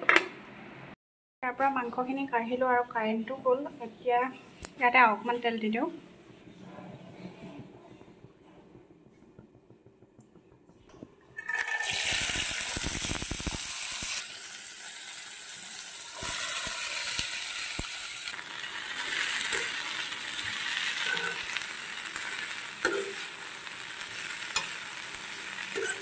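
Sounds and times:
food sizzling in hot oil: 11.4s - 26.0s
spatula scraping pan: 19.0s - 23.4s, 24.1s - 26.0s.

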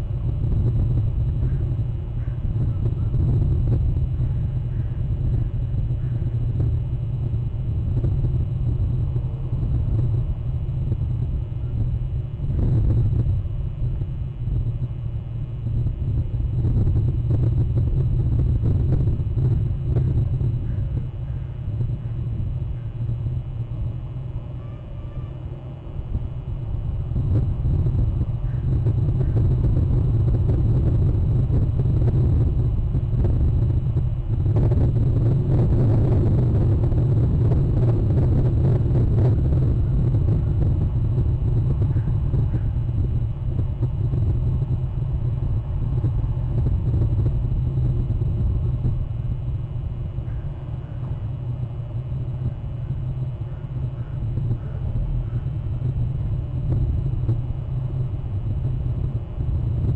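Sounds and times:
low rumble: 0.0s - 59.9s.

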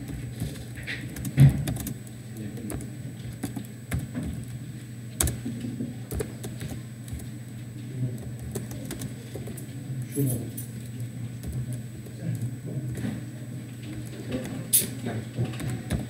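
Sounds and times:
keyboard typing clicks: 0.0s - 2.0s, 2.6s - 4.6s, 5.2s - 7.3s, 8.1s - 9.6s, 15.5s - 16.0s.

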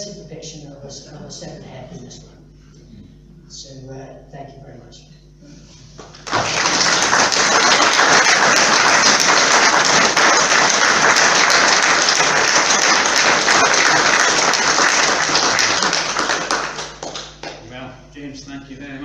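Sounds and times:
audience applauding: 6.0s - 17.6s.

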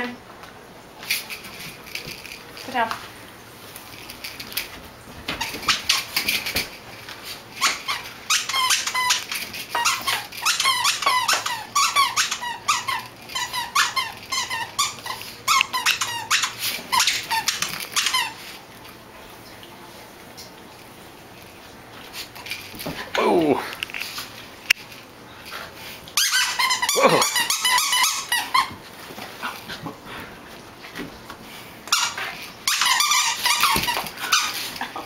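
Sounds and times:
squeaky toy squeaking: 7.6s - 18.4s, 26.2s - 28.7s, 31.9s - 34.6s.

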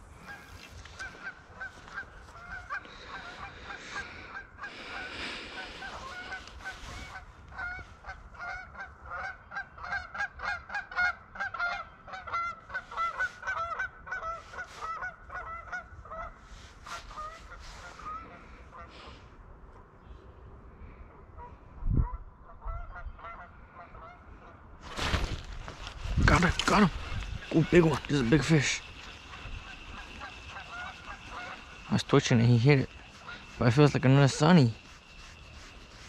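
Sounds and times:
birds calling: 0.0s - 10.6s, 22.5s - 36.0s.

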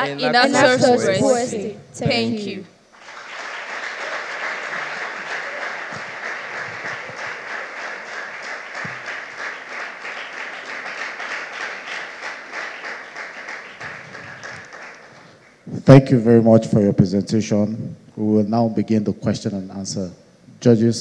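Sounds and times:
audience applauding: 2.9s - 15.6s.

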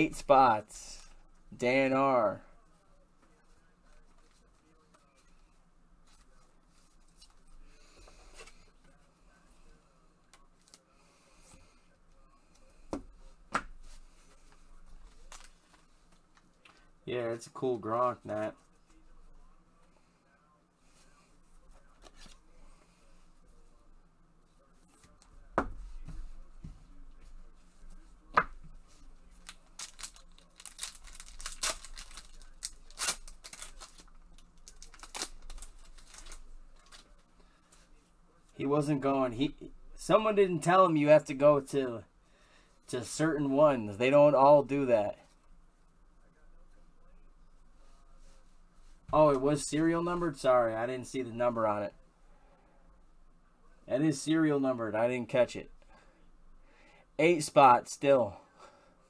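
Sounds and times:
plastic card sleeves rustling: 13.8s - 16.8s, 28.4s - 37.8s.

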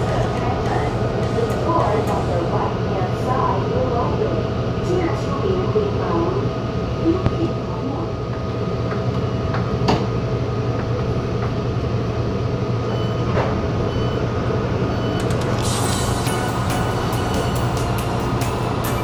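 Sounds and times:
train rumble and hum: 0.0s - 19.0s.

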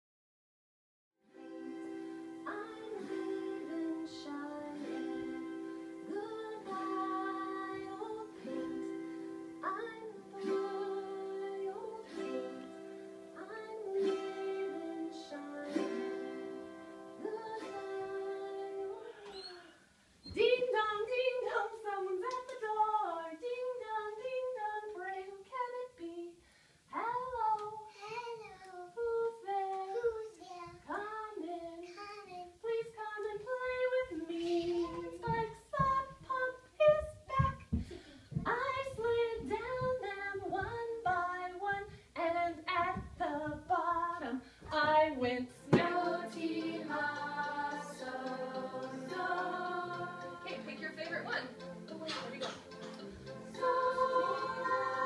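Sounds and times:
instrumental music with sustained notes: 1.2s - 13.4s, 14.0s - 19.0s, 45.8s - 55.0s
woman and children singing: 2.4s - 19.6s, 20.2s - 28.0s, 28.8s - 30.2s, 30.8s - 31.9s, 32.5s - 55.0s.

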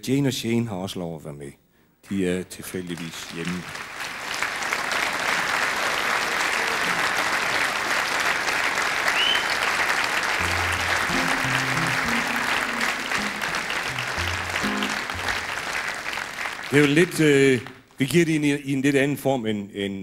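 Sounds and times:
audience applauding: 2.7s - 17.8s
short low instrument notes: 10.4s - 15.7s.

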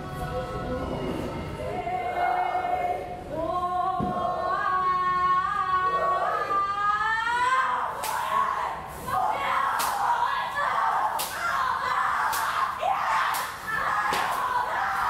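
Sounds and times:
voices singing wordless held notes: 0.0s - 8.0s.

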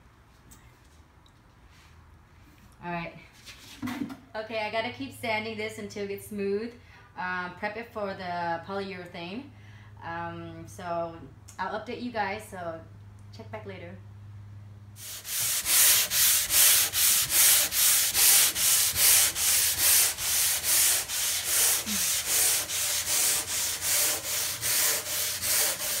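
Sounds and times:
sandpaper scratching wood: 15.0s - 26.0s.

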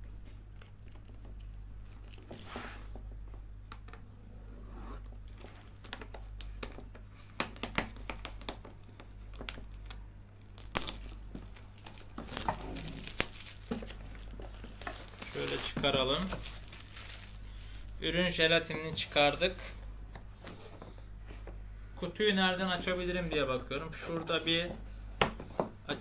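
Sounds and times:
plastic film crinkling: 0.4s - 2.5s, 5.3s - 17.9s.

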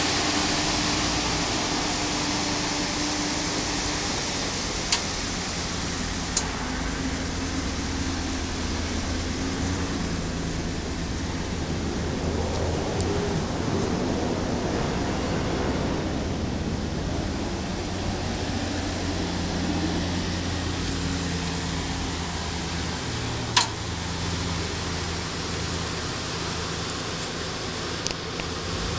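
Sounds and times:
outdoor hiss: 0.0s - 13.6s
truck engine idling: 0.0s - 28.9s.

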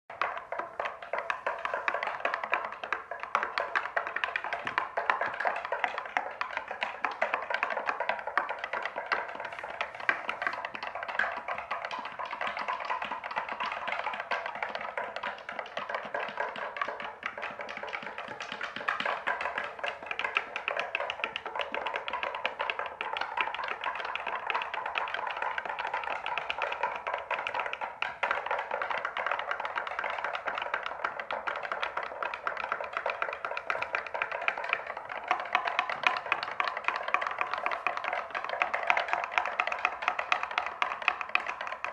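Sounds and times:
rapid dense tapping and clicking: 0.1s - 41.9s.

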